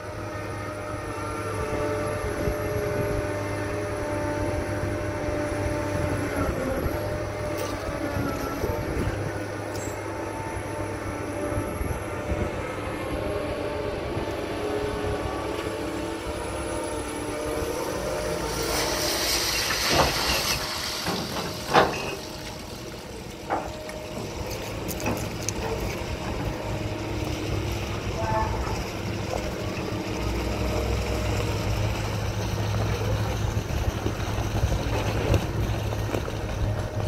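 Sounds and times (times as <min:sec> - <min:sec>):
crane diesel engine and winches: 0:00.0 - 0:37.0
metal clanks of bucket chains: 0:09.7 - 0:10.0.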